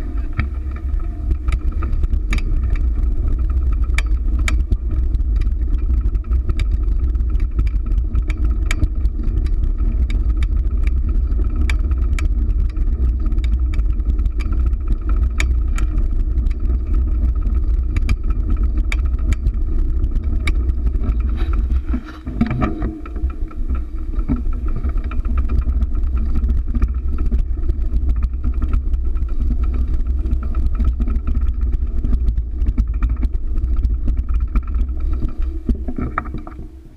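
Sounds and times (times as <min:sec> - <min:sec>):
bicycle rumbling over stone pavement: 0:00.0 - 0:36.9
sharp clicks and knocks from bumps: 0:00.0 - 0:36.9.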